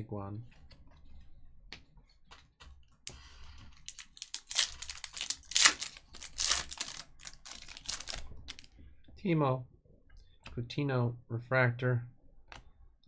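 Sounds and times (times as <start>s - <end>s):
foil wrapper crinkling: 3.8s - 8.7s.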